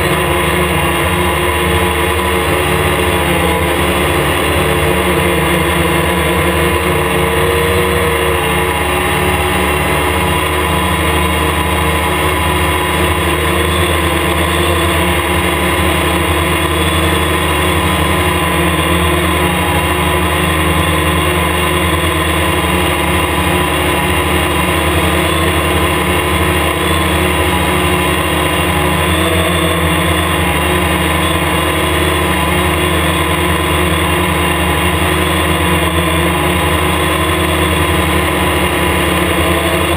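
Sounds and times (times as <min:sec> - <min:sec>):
multirotor motors and propellers humming: 0:00.0 - 0:39.9.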